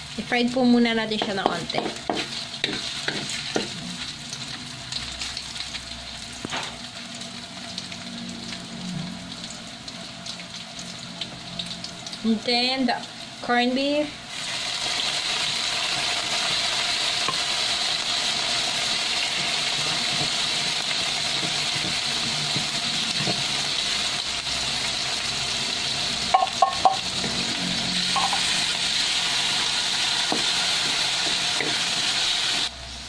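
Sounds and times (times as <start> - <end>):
meat sizzling in hot oil: 0.0 - 33.0.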